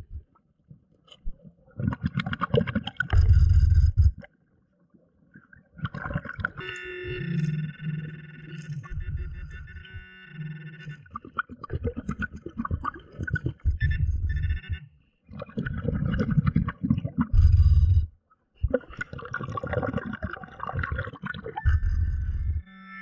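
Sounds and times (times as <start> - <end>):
underwater bubbling from breathing: 1.6 - 4.3, 5.4 - 6.6, 11.0 - 14.3, 15.3 - 22.6.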